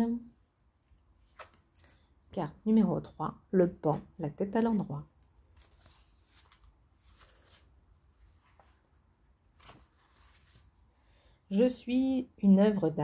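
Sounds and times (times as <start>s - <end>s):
soft rustles: 4.8s - 10.9s.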